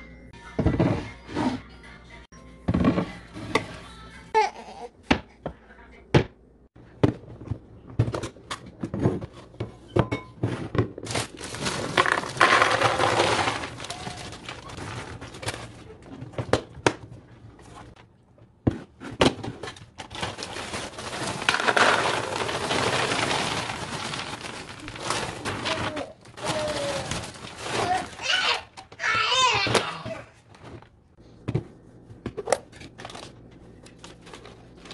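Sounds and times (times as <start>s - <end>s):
plastic bag crinkling: 11.1s - 15.8s, 20.1s - 28.2s
dry cereal pouring: 11.4s - 14.6s, 20.4s - 25.4s.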